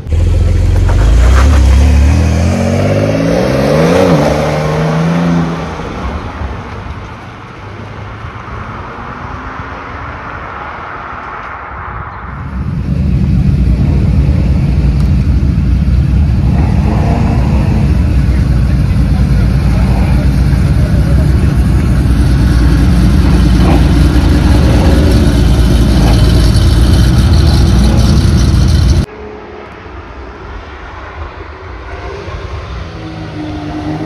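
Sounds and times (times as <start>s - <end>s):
race car engine at low revs: 0.0s - 7.1s, 12.4s - 29.8s.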